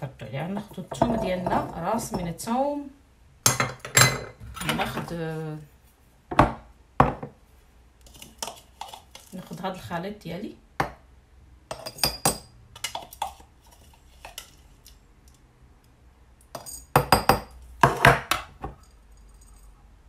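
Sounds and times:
metal spoon clinking and scraping: 0:08.0 - 0:09.6, 0:11.7 - 0:15.4, 0:16.5 - 0:17.3.

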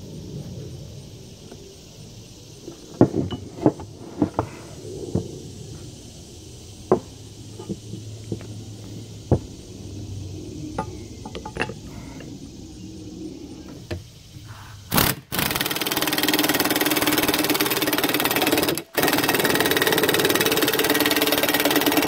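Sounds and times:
steel parts clinking and knocking: 0:03.0 - 0:04.4, 0:10.8 - 0:11.9.

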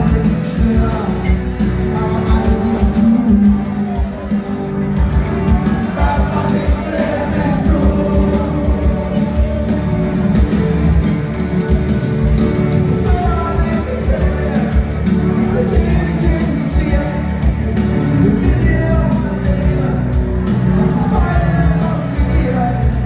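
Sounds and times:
person singing: 0:00.0 - 0:04.4, 0:05.0 - 0:10.4, 0:12.9 - 0:23.0
live band playing: 0:00.0 - 0:23.0
drum beat: 0:02.1 - 0:23.0.

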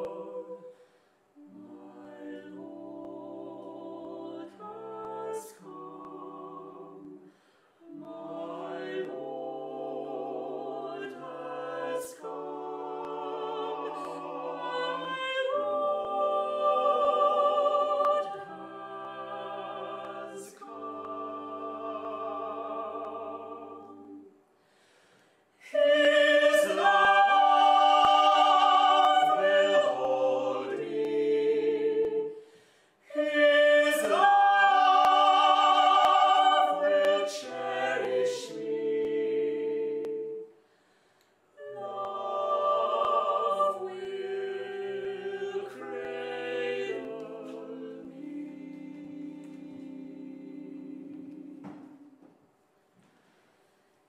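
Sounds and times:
vocal quartet singing in harmony: 0:00.0 - 0:52.4.

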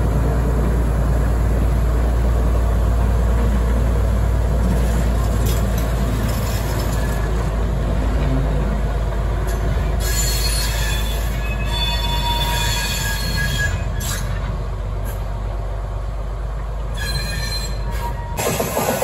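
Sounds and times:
train running noise: 0:00.0 - 0:19.0
wheel flanges squealing on rail: 0:04.7 - 0:15.4, 0:16.8 - 0:19.0.

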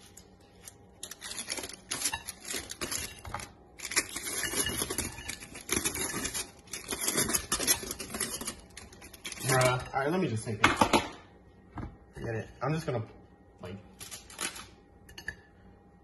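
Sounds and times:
aluminium foil crinkling: 0:00.0 - 0:09.9, 0:13.9 - 0:14.8.

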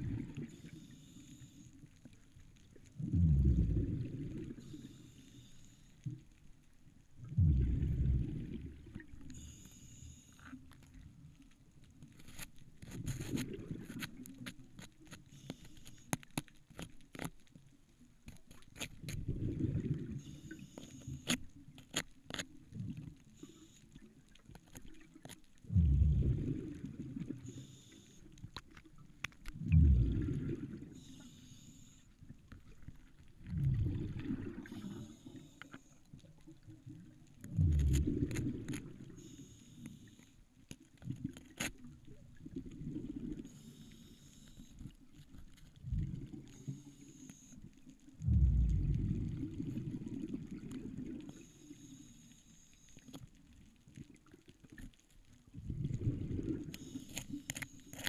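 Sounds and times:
diver exhaling bubbles underwater: 0:03.0 - 0:04.7, 0:07.3 - 0:09.1, 0:19.2 - 0:20.5, 0:25.7 - 0:27.6, 0:29.6 - 0:31.0, 0:33.5 - 0:35.1, 0:37.5 - 0:39.2, 0:48.2 - 0:51.2, 0:55.6 - 0:56.8
breathing hiss: 0:04.6 - 0:06.0, 0:09.4 - 0:10.4, 0:31.0 - 0:32.1, 0:39.2 - 0:40.4, 0:43.5 - 0:44.8.

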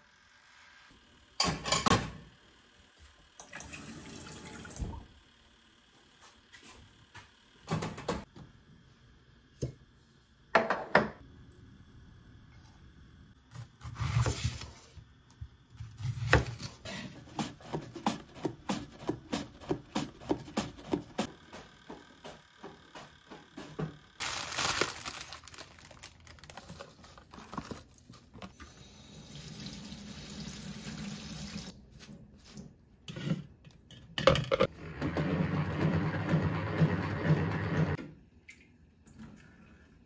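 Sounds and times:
running tap water: 0:03.4 - 0:05.0, 0:28.8 - 0:31.7
plastic bag rustling: 0:24.2 - 0:28.4.

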